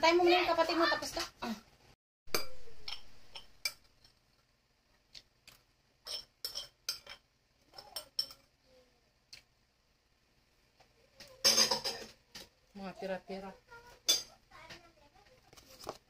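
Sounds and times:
dishes clattering: 2.3s - 4.1s, 6.0s - 8.5s, 11.4s - 12.5s, 14.0s - 14.4s.

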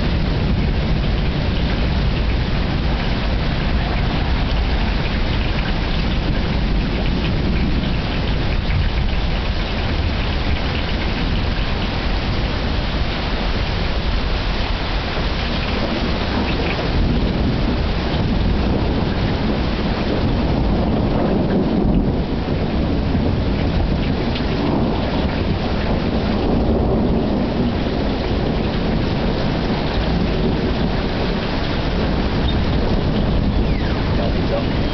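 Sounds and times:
heavy rain: 0.0s - 34.9s
rolling thunder: 0.0s - 34.9s.

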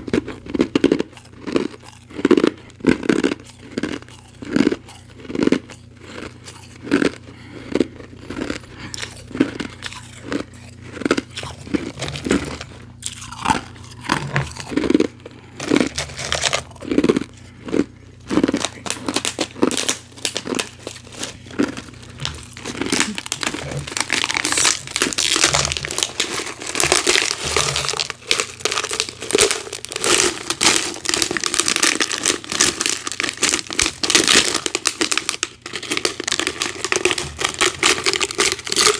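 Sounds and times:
ice being chewed: 0.0s - 38.9s
plastic bottle crinkling: 18.5s - 38.9s.

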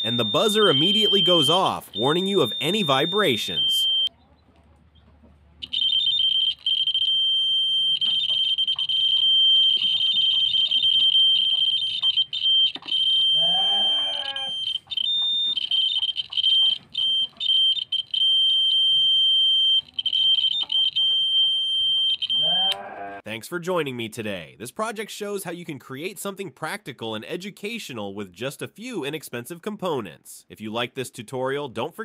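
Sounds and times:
high-pitched buzzer tone: 13.0s - 17.4s, 21.9s - 23.2s.

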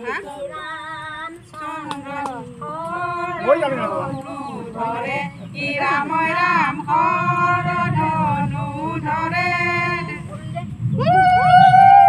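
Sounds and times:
women singing long held notes: 0.0s - 10.4s.

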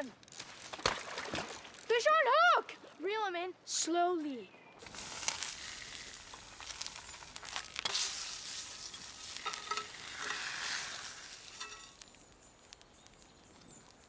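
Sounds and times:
utensil scraping a pan: 4.8s - 12.0s
fish sizzling in a frying pan: 4.8s - 14.0s.

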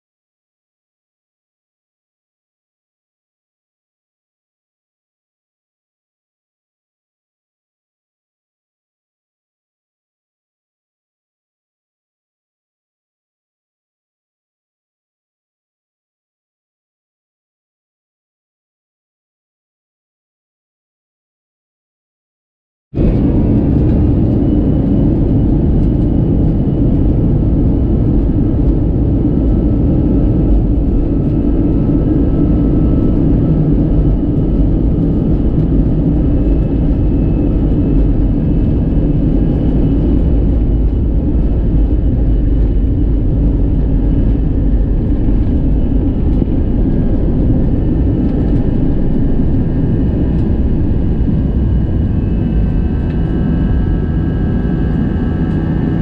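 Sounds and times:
high fan whine: 23.0s - 56.0s
jet engines roaring: 23.0s - 56.0s.

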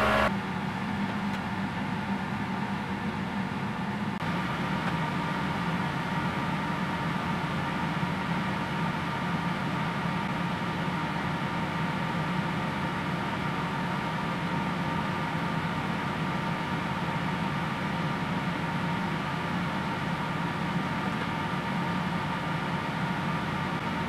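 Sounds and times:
thin high whine: 0.0s - 0.3s
steady mechanical hum: 0.0s - 24.0s.

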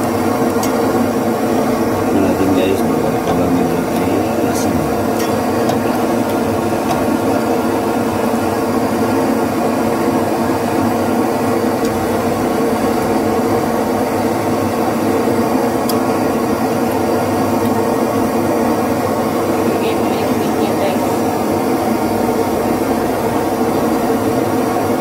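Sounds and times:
sauce boiling in a pot: 0.0s - 19.7s, 21.0s - 25.0s.

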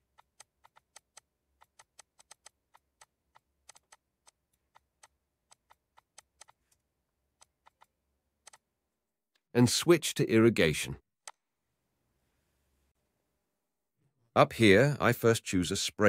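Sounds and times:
computer mouse clicks: 0.1s - 6.8s, 7.4s - 8.6s.

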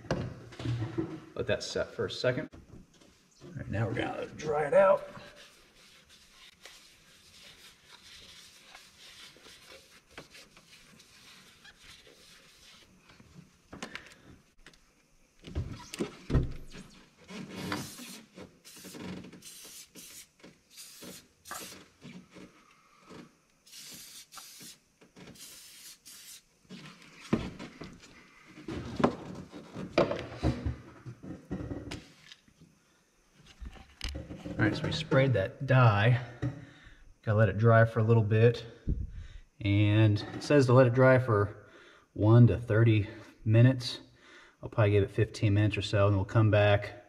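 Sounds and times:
aerosol can spraying: 17.6s - 21.9s, 23.6s - 26.5s.

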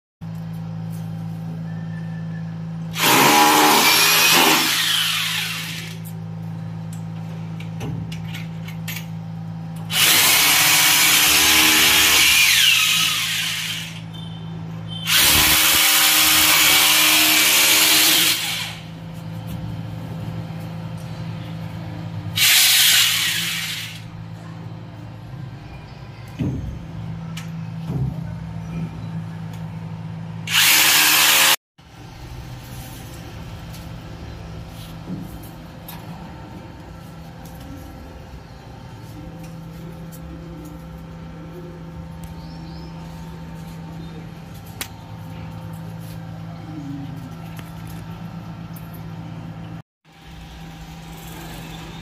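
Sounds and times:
electric drill running: 2.9s - 6.1s, 9.9s - 14.0s, 15.1s - 18.9s, 22.4s - 24.1s, 30.5s - 31.6s
steady low hum: 31.8s - 52.0s.

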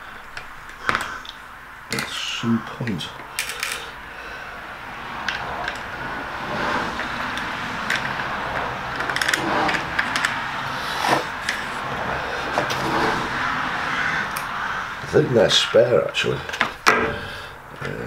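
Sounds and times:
steady background noise: 0.0s - 18.0s
metal parts clicking on aluminium rail: 9.0s - 10.4s.

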